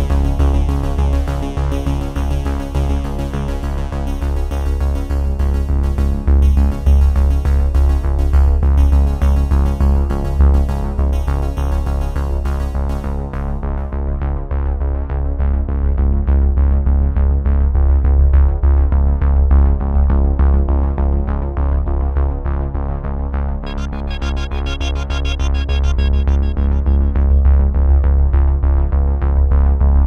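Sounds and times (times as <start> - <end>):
electronic synthesizer music: 23.6 - 28.3.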